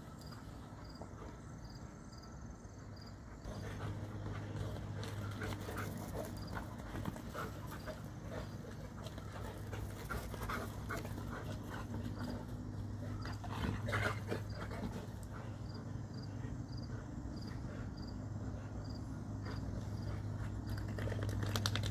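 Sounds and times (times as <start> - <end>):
dogs panting hard: 3.2 - 21.1
paws and bodies scuffling: 3.5 - 15.4.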